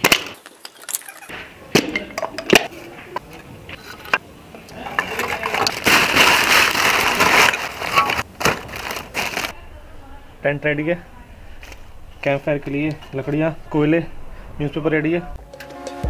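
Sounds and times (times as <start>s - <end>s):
wood blocks knocking together: 0.0s - 3.3s
newspaper crumpling: 5.1s - 9.6s.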